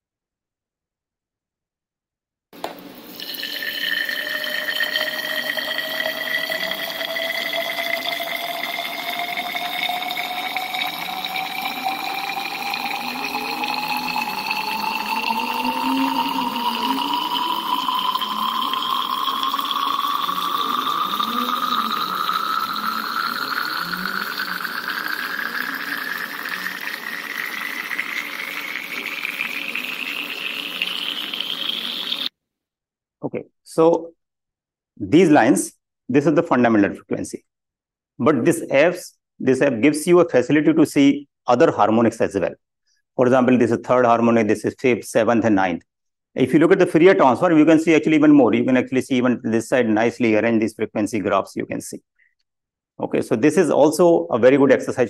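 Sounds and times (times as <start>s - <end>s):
water pouring into glass cylinder: 2.8s - 32.3s.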